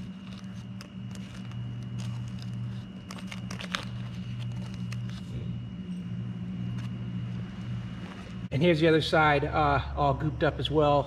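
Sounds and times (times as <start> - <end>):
tape crinkling and crackling: 0.0 - 5.5
steady low hum: 0.0 - 11.0.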